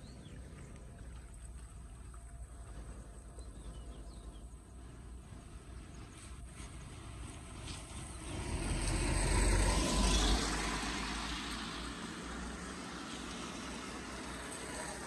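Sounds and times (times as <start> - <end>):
vehicle passing by: 6.7 - 15.0.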